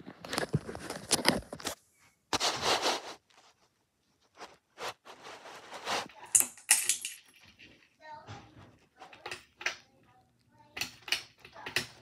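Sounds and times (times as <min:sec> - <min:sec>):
handling and rustling: 0:00.0 - 0:09.2.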